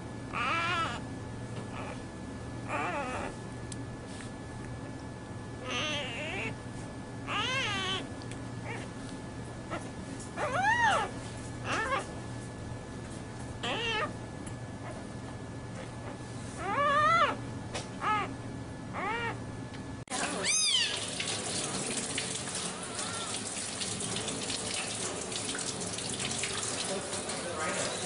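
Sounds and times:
kitten mewing: 0.4s - 1.0s, 5.6s - 6.6s, 7.3s - 8.9s, 13.6s - 14.1s, 19.0s - 19.4s, 20.4s - 21.0s.

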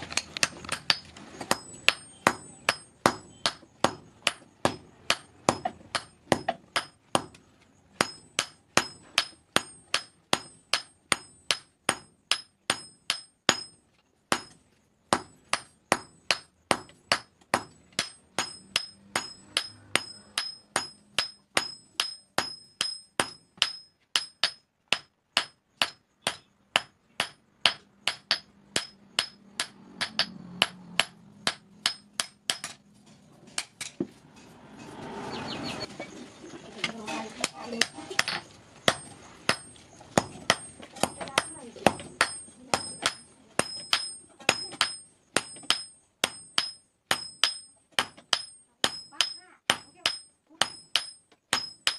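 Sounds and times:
hammer ringing on anvil: 40.5s - 51.9s.

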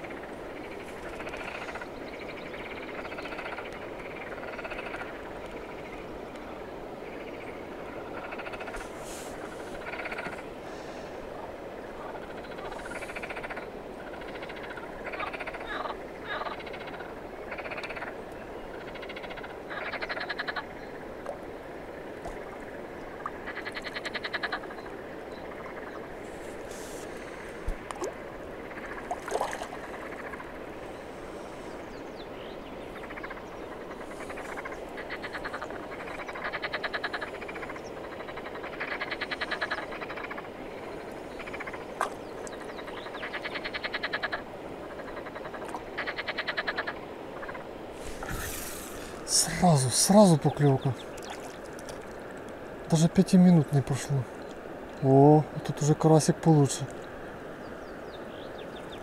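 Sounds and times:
frogs croaking: 0.0s - 59.0s.

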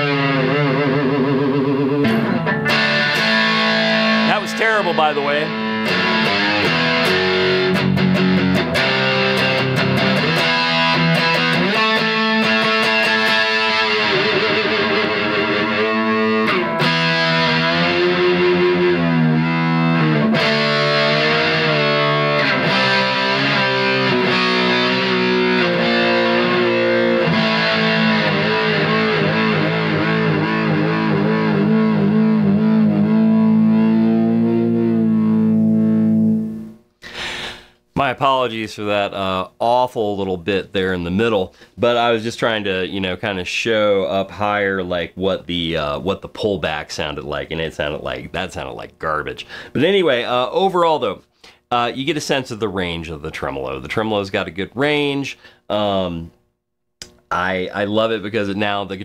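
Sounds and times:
distorted electric guitar with tremolo: 0.0s - 37.7s.

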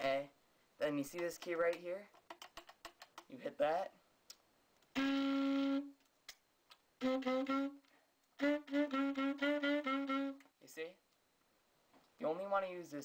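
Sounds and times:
alto saxophone notes: 4.9s - 6.0s, 7.0s - 10.4s.

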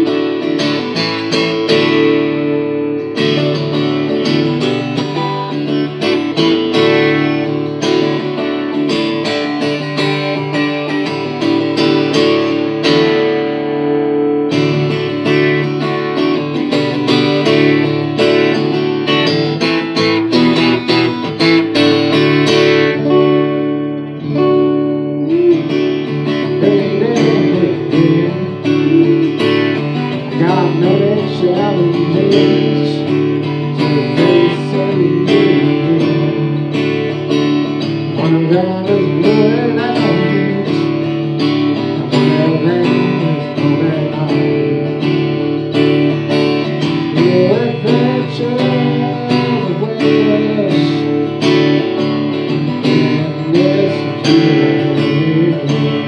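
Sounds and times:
man singing: 0.0s - 2.4s, 24.2s - 56.0s
acoustic guitar strumming: 0.0s - 56.0s.

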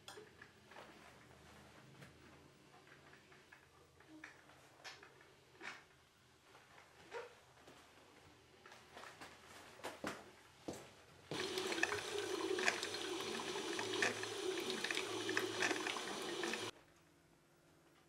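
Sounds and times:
coffee maker gurgling hiss: 11.3s - 16.7s.

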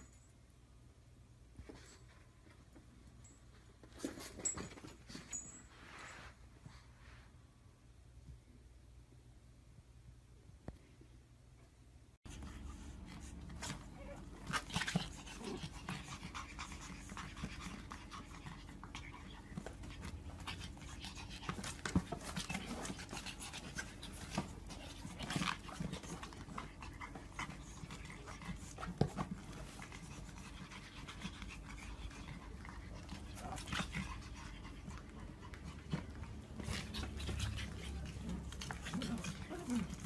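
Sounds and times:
puppies panting: 12.3s - 40.0s.

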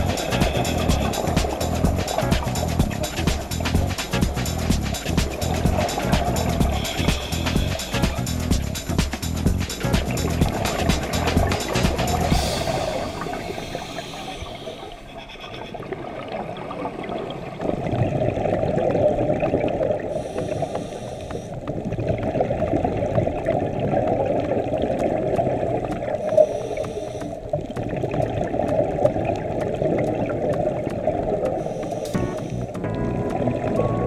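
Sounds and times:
regulator hisses: 0.0s - 15.1s, 20.2s - 21.6s, 31.6s - 32.8s
underwater bubbling and gurgling: 0.0s - 34.0s.

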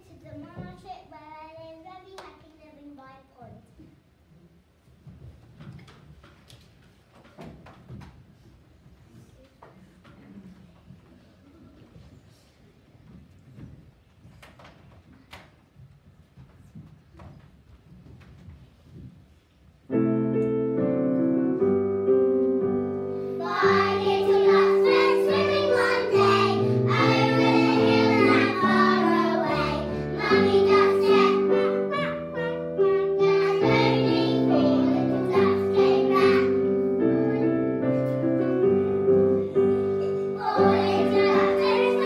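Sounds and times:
piano playing: 19.9s - 42.0s
young children singing: 23.2s - 38.2s, 38.8s - 42.0s.

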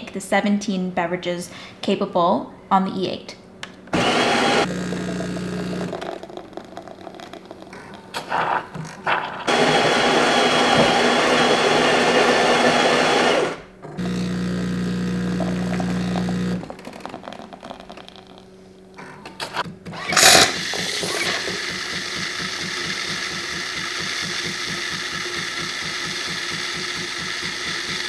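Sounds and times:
pump humming: 4.0s - 6.2s, 9.5s - 17.4s
coffee grinder grinding: 4.0s - 18.4s, 20.1s - 28.0s.

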